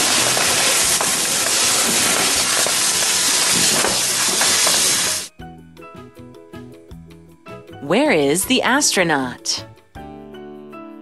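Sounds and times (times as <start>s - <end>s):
faint crackles: 0.0s - 5.3s
water jetting from fire hose: 0.0s - 5.3s.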